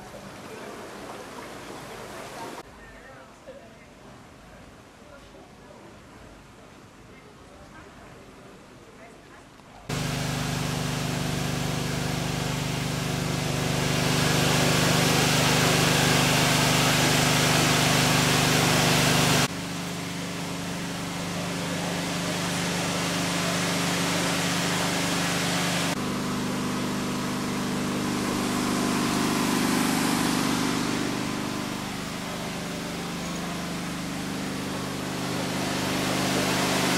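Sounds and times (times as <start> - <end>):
heavy engine idling: 9.9 - 36.9.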